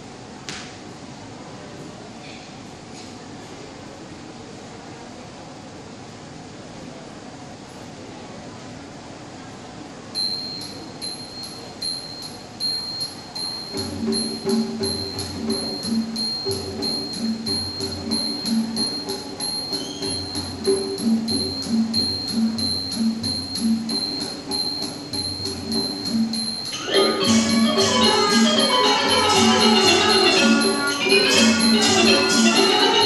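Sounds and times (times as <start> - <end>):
small cymbals ringing beat: 10.2 - 33.0
low-pitched instrument pattern: 11.1 - 33.0.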